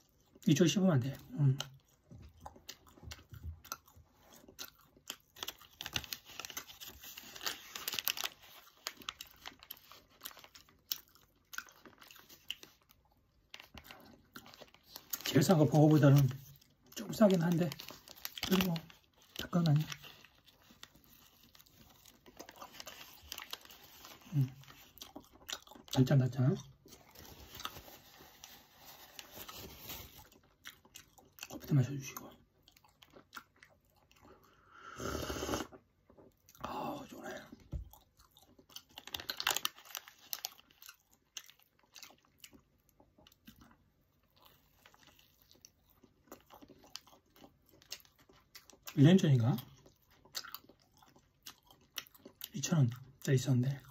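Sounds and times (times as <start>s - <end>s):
sandwich being bitten and chewed: 1.3s - 53.3s
paper wrapper crinkling: 5.1s - 25.3s, 26.9s - 30.6s, 38.8s - 41.0s.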